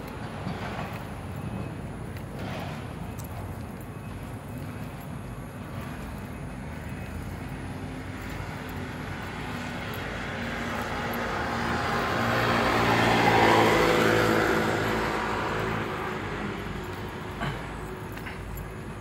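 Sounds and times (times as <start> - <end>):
motorcycle passing: 7.3 - 19.0.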